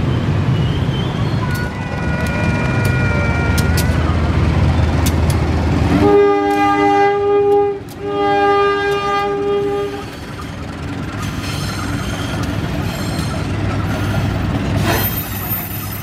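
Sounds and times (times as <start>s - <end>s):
locomotive engine rumble: 0.0s - 16.0s
locomotive horn blasts: 1.4s - 4.2s, 5.9s - 10.2s.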